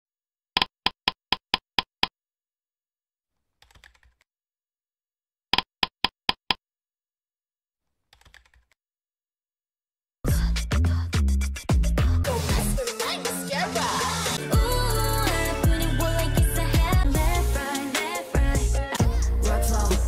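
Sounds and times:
loud pop music: 10.3s - 20.0s.

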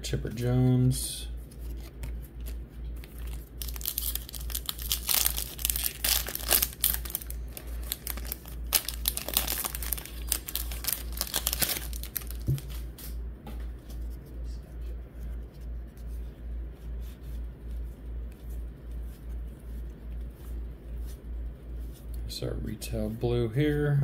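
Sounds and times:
foil wrapper tearing and crinkling: 3.0s - 12.8s.

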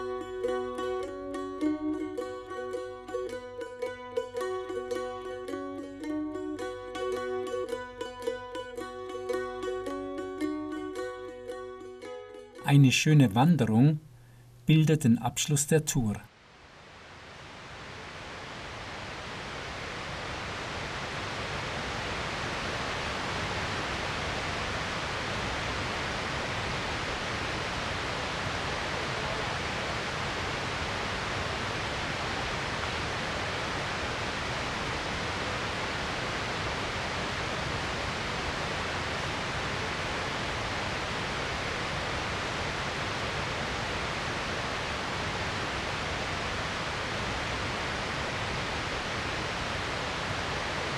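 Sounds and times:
waterfall rushing: 16.9s - 50.9s.

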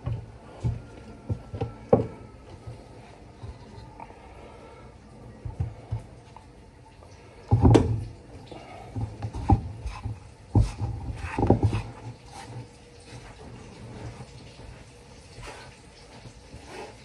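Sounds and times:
chicken rubbed through flour: 9.8s - 17.0s.

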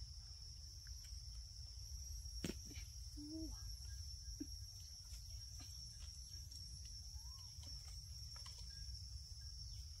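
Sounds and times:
insects droning: 0.0s - 10.0s.

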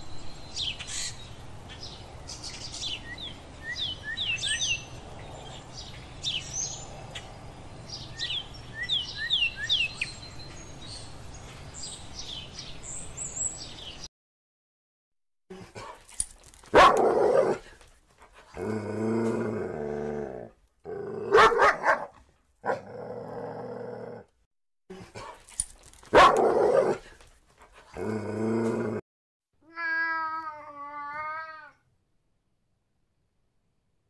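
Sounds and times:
dog barking and howling: 16.7s - 17.7s, 21.2s - 23.2s, 26.1s - 27.1s
cat meowing: 29.6s - 31.8s.

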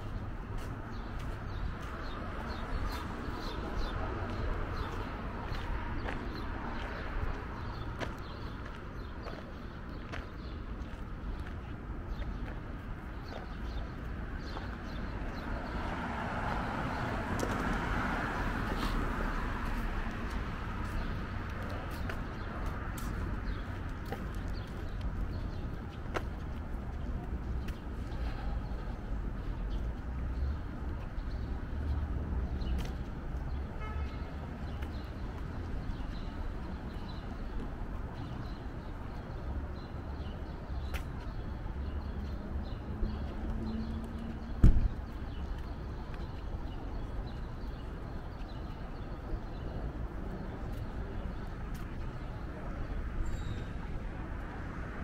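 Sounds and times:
traffic rumble: 0.0s - 55.0s
footsteps on concrete: 0.1s - 15.4s, 18.6s - 29.0s, 32.7s - 33.2s, 40.9s - 41.2s.

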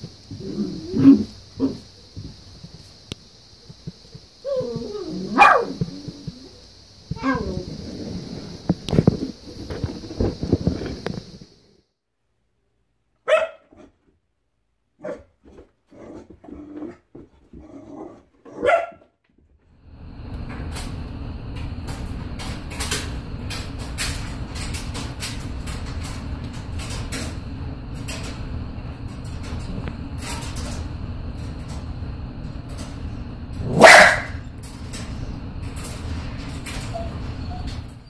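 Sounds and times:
handheld recording rumble: 0.0s - 11.8s, 19.9s - 38.0s
puppy barking: 4.5s - 6.4s, 13.2s - 13.9s, 15.0s - 15.3s, 18.5s - 19.0s, 33.6s - 34.4s.

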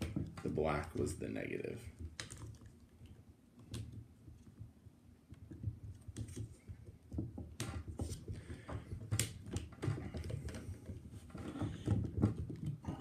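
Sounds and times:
plastic cases knocking and scraping: 0.0s - 1.2s, 5.4s - 13.0s.

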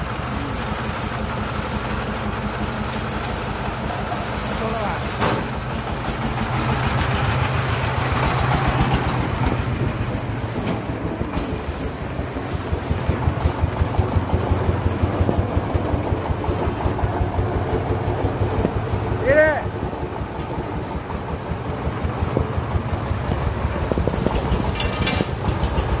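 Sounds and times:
single-cylinder engine chugging: 0.0s - 26.0s.

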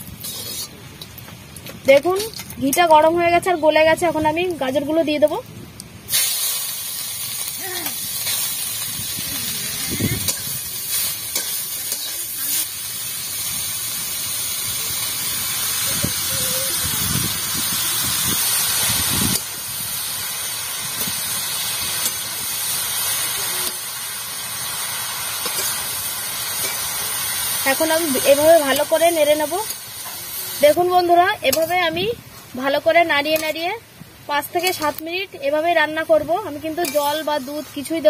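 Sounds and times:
carrot sizzling in hot fat: 0.0s - 38.0s
spatula scraping a pan: 0.2s - 0.8s.

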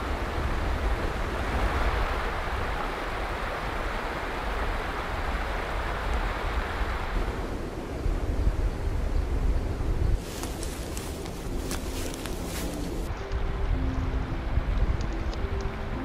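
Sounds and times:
stream rushing over rocks: 0.0s - 7.6s.

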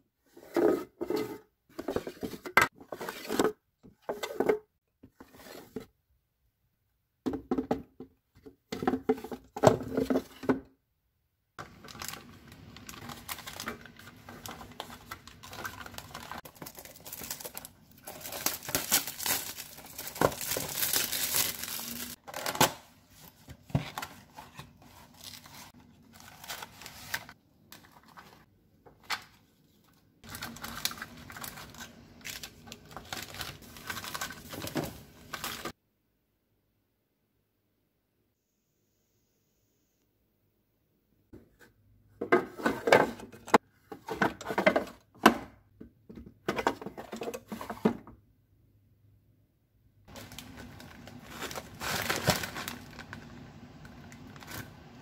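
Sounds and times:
packets crinkling: 11.6s - 22.6s, 30.2s - 35.7s, 50.1s - 54.8s
paper packaging tearing: 15.0s - 22.7s, 50.1s - 53.2s
plastic drawers clacking: 42.2s - 45.5s.

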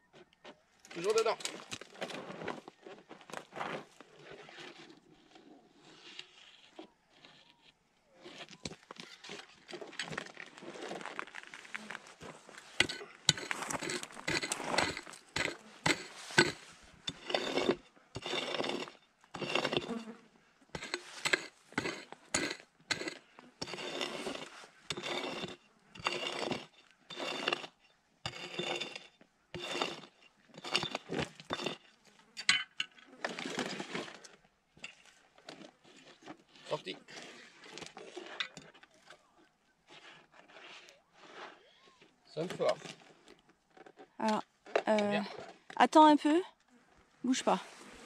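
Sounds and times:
pick scraping soil and gravel: 0.8s - 46.1s, 46.8s - 48.0s
pick striking stony dirt: 12.2s - 20.1s, 20.8s - 32.7s.

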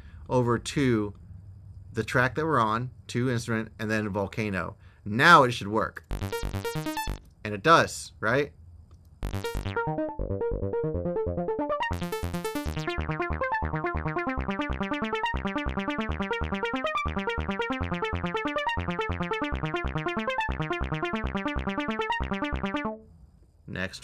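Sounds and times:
synth playing short filtered notes: 6.1s - 7.2s, 9.2s - 23.0s.

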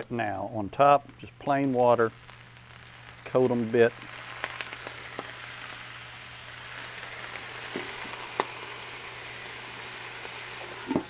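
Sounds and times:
food sizzling on a griddle: 0.6s - 11.0s
water hissing into steam: 1.5s - 11.0s
sharp clicks and pops: 3.3s - 5.4s.

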